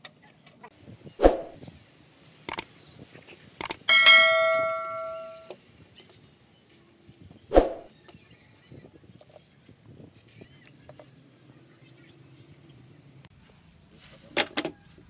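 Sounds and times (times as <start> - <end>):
bright bell ding: 3.9 - 5.5.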